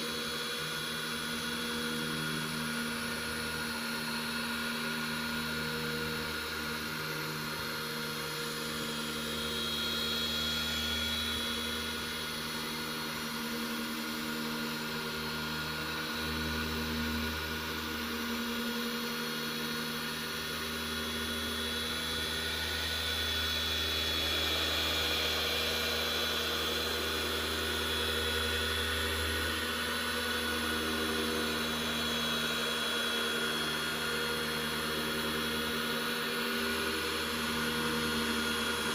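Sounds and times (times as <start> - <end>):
electric car polisher humming: 0.0 - 38.9.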